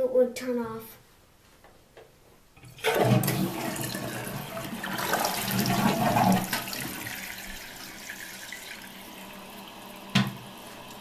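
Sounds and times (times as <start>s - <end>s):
toilet flushing water gushing: 2.6s - 11.0s
toilet tank refilling hiss: 2.6s - 11.0s.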